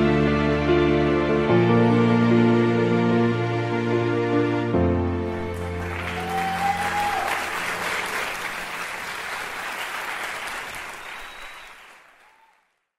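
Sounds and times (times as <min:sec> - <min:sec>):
audience applauding: 0:05.3 - 0:12.9
high call from crowd: 0:06.0 - 0:07.8.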